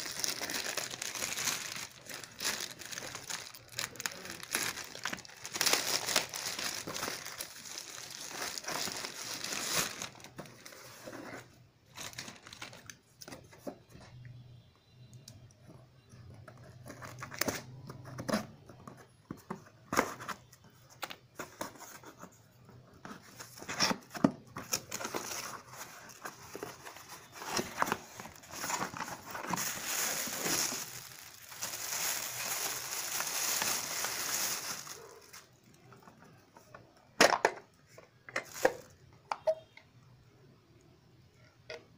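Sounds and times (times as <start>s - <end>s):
plastic bag crinkling: 0.0s - 11.1s, 11.9s - 13.0s, 24.6s - 35.7s, 38.4s - 38.9s
plastic packaging crinkling and tearing: 0.0s - 13.7s, 23.1s - 36.4s, 38.4s - 39.0s.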